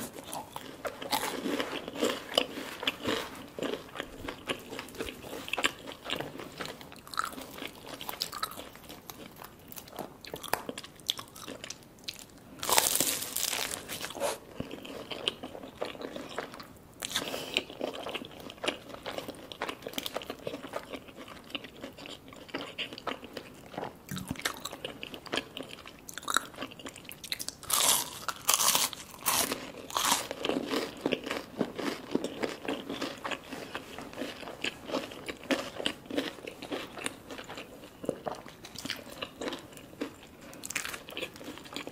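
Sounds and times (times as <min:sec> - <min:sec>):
crispy pastry chewing: 0:00.0 - 0:41.9
loud crunches: 0:12.6 - 0:14.4.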